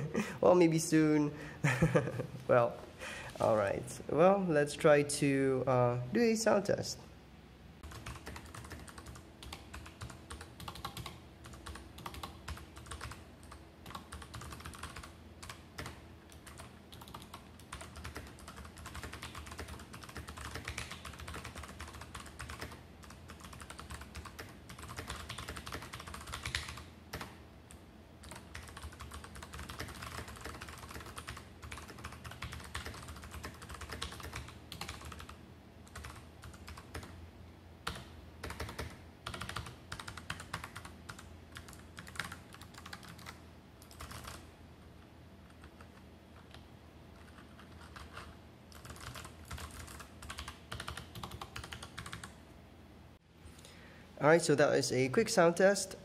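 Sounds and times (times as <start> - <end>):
fast typing on mechanical keyboard: 7.8 - 27.4, 28.2 - 37.2, 37.8 - 44.5, 47.2 - 52.4.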